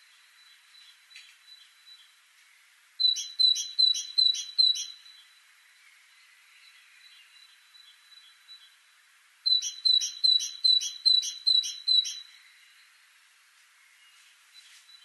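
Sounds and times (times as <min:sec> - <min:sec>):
faint bird chirps: 0:00.0 - 0:15.0
great tit singing: 0:03.0 - 0:05.3, 0:09.4 - 0:12.9.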